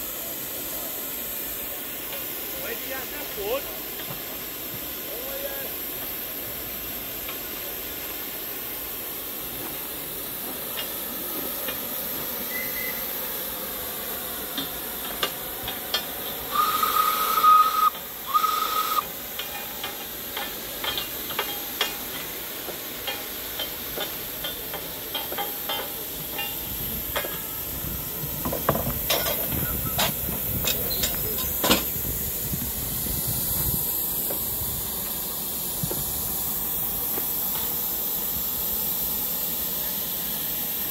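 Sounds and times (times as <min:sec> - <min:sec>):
steam locomotive hissing: 0:00.0 - 0:40.9
steam whistle notes: 0:12.4 - 0:13.2, 0:16.5 - 0:19.1
metallic clanks and knocks: 0:19.4 - 0:22.4.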